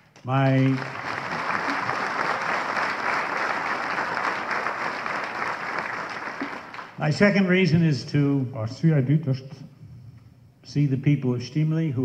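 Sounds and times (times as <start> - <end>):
audience applauding: 0.6 - 7.0.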